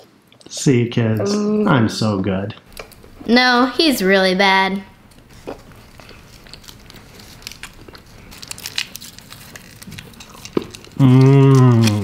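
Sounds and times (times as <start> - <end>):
paper candy wrapper crinkling: 5.1 - 12.0.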